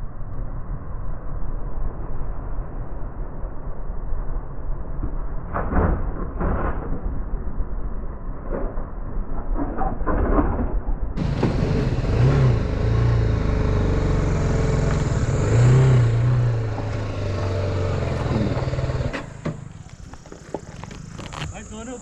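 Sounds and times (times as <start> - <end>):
motorcycle engine running: 11.2 - 22.0.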